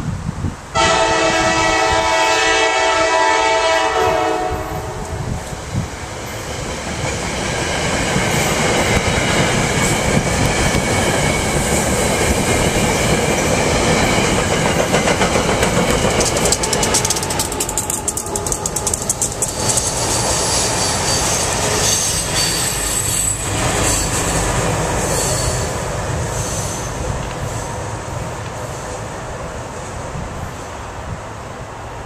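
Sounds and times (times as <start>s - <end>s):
train horn: 0.7s - 5.4s
train wheels clicking over rail joints: 5.0s - 29.0s.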